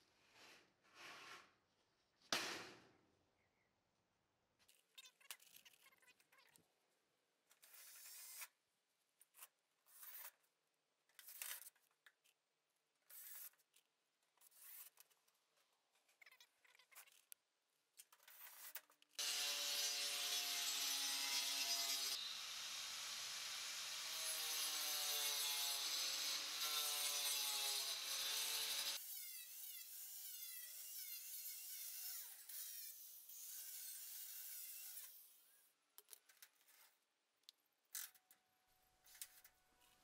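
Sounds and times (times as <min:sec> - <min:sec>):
angle grinder cutting board: 0:19.2 - 0:29.0.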